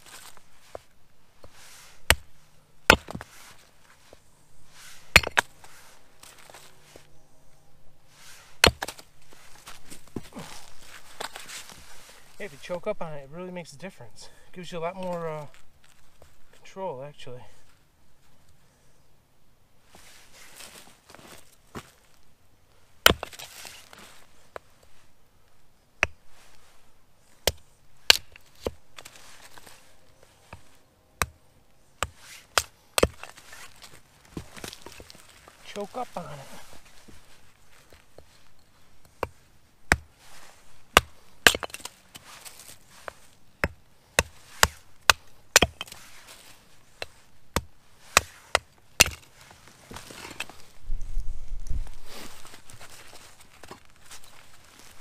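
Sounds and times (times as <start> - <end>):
axe chopping firewood: 1.4 - 3.3, 5.0 - 5.6, 8.6 - 11.7, 23.0 - 23.9, 26.0 - 26.3, 27.4 - 29.7, 32.0 - 36.7, 39.0 - 40.2, 40.9 - 46.0, 46.9 - 49.4.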